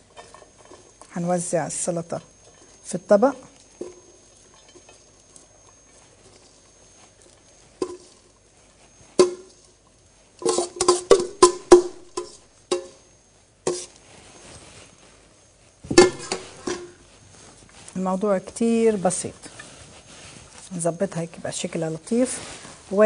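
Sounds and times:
utensil knocking metal bowl: 10.5 - 13.0, 15.9 - 16.9.

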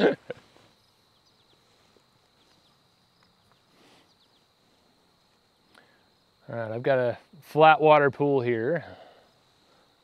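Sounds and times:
insect trill: 0.0 - 10.0
faint ticks: 1.3 - 4.4, 5.2 - 6.0.

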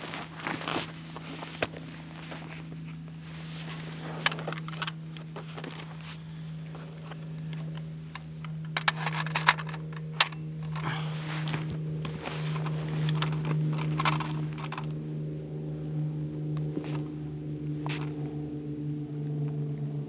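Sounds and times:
steady low hum: 0.0 - 20.0
magazine metal clicks and clinks: 7.2 - 10.9, 12.6 - 14.9.

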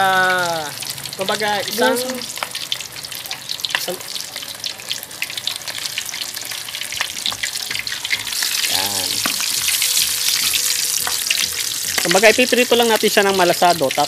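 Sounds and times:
pork sizzling and popping in oil: 0.0 - 14.0
metal spoon stirring oil: 2.3 - 12.8.

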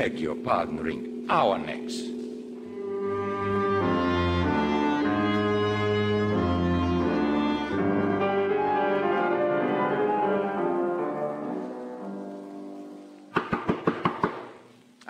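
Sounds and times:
sustained string chords: 0.0 - 12.0.

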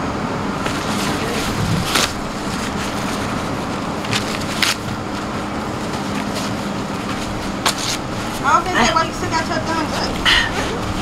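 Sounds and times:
traffic and street noise: 0.0 - 11.0.

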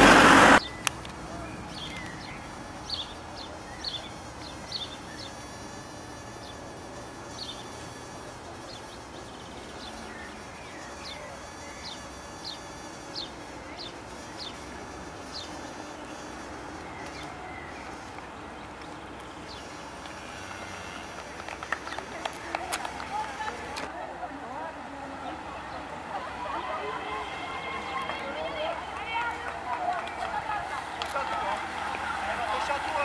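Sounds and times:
insects chirping: 0.5 - 23.8
thin high insect buzz: 2.6 - 21.3.

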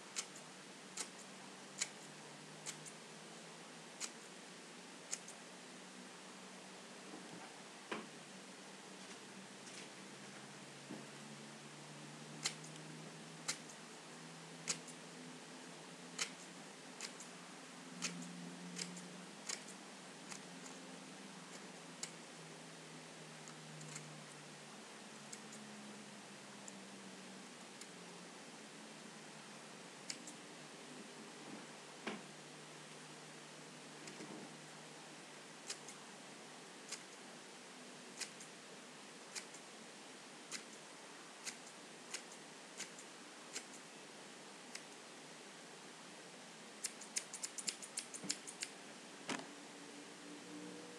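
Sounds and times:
faint scissors click: 12.4 - 12.8, 14.6 - 15.0, 16.2 - 17.3, 18.0 - 20.8, 35.6 - 36.0, 38.2 - 38.5, 39.3 - 39.6, 41.4 - 43.8, 46.8 - 48.7
scissors snipping paper: 46.8 - 48.7.

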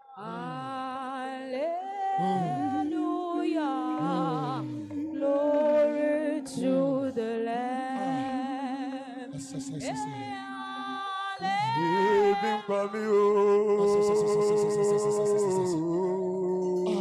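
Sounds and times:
wordless worship singing: 0.0 - 17.0.

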